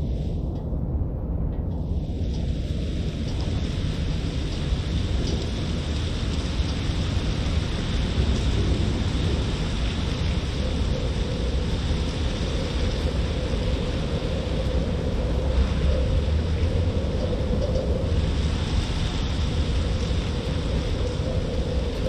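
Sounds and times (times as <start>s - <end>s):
rain hissing on wet street: 0.0s - 0.5s, 1.8s - 22.0s
low city rumble: 0.0s - 22.0s.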